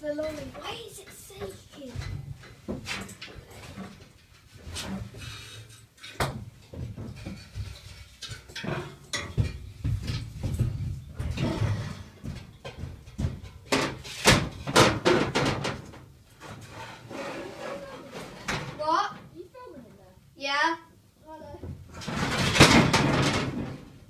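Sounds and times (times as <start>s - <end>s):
metal grille knocking and clattering: 6.0s - 16.7s, 21.8s - 24.0s.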